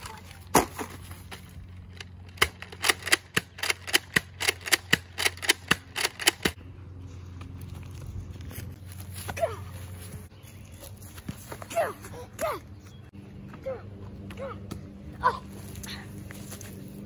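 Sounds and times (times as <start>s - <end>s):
low background hum: 0.0s - 17.0s.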